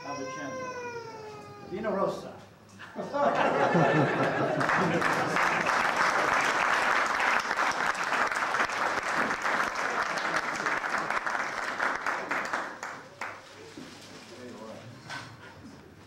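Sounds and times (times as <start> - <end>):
crowd applauding: 4.0 - 13.4.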